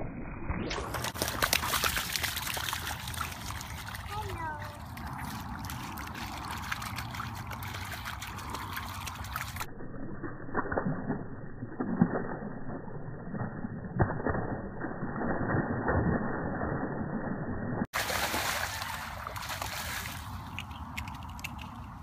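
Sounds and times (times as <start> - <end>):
dogs splashing through water: 0.7 - 9.7, 18.0 - 22.0.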